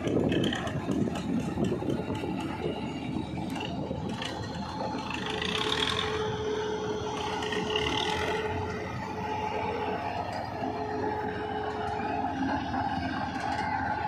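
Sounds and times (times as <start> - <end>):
machine clattering and ratcheting: 0.0 - 2.8
steady whine: 0.0 - 14.0
tractor engine running: 0.0 - 14.0.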